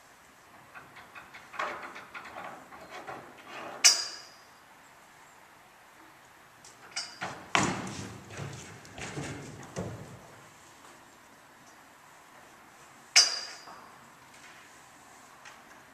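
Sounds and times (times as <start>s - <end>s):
metal bar rattling and clanking: 0.6s - 4.4s.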